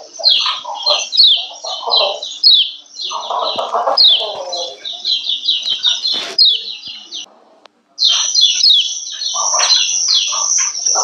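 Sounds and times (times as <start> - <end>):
low coarse chattering: 0.0 - 11.0.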